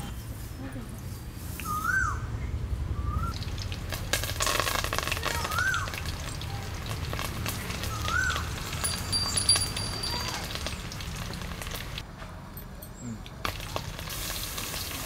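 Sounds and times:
bird whistling: 1.6 - 2.3, 3.0 - 3.4, 7.9 - 8.5
hot oil crackling and sizzling: 3.3 - 12.0, 13.4 - 15.0.

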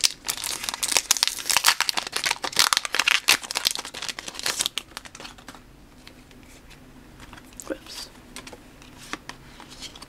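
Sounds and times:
foil wrapper crinkling and tearing: 0.0 - 5.5.

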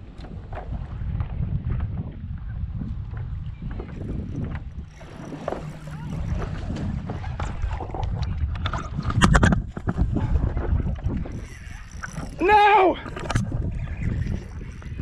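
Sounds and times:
wind rumbling on microphone: 0.0 - 15.0
water sloshing: 3.8 - 15.0
water splashing: 4.4 - 8.2.

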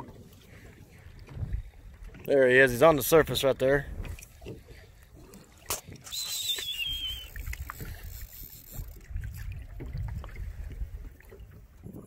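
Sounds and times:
wind buffeting microphone: 0.0 - 4.8, 6.7 - 12.0
water against boat hull: 0.0 - 12.0
wavering whistle: 6.0 - 7.5.

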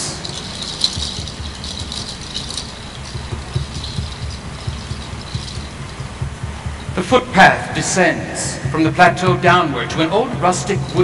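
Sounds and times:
soft rattling: 0.0 - 7.0, 10.5 - 11.0
faint low thumps: 0.0 - 7.7.

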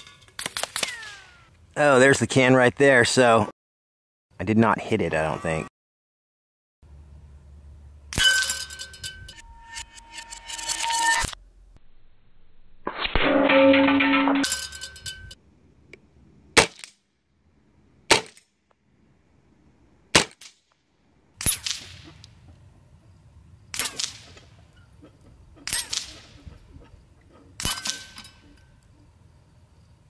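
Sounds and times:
pellets ringing on steel: 8.2 - 9.8.

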